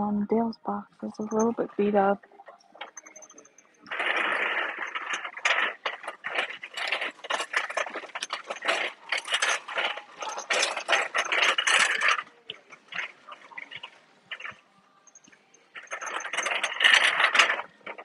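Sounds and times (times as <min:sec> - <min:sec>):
nylon jacket rustling: 0:03.8 - 0:18.0.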